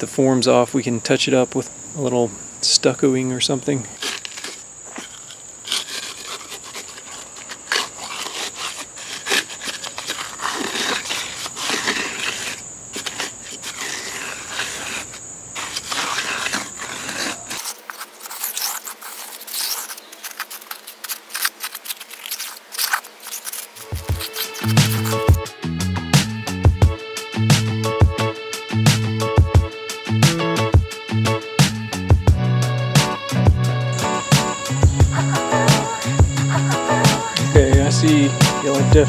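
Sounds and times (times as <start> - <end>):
high-pitched insect drone: 0.0 - 25.6, 33.2 - 39.0
edging tool scraping wet concrete: 3.4 - 25.5, 34.0 - 39.0.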